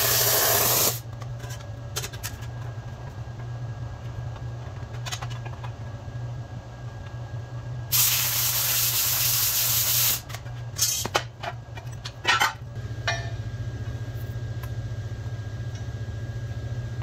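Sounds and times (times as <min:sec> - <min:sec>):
steady low hum: 0:00.0 - 0:17.0
plasma cutter arc hissing: 0:07.9 - 0:10.2.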